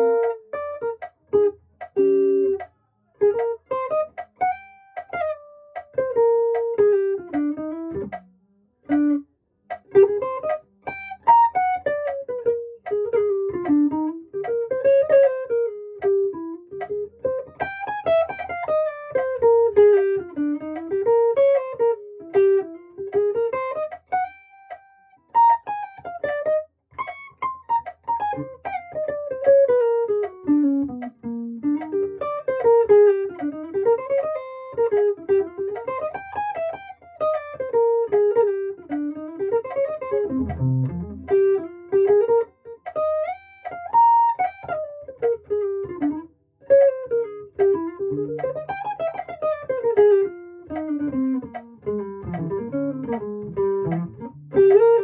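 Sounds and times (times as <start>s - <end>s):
electric guitar jazz lines: 0.0s - 2.6s, 3.2s - 8.1s, 8.9s - 9.2s, 9.8s - 24.8s, 25.4s - 55.0s.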